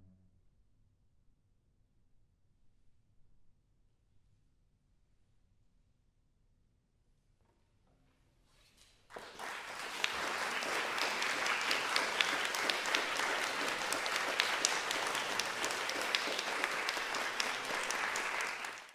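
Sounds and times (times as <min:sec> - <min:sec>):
audience applause: 0:09.1 - 0:18.9.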